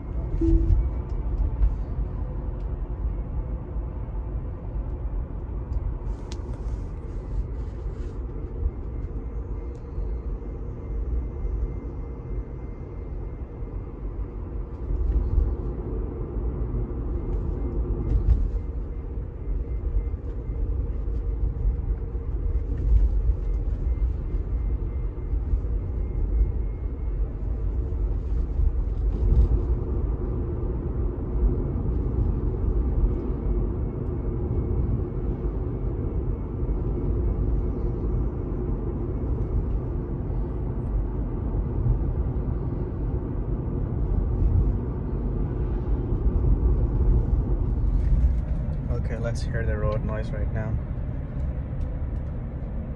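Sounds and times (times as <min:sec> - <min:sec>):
faint whining whistle: 0:00.0 - 0:01.7
low road rumble in car cabin: 0:00.0 - 0:52.9.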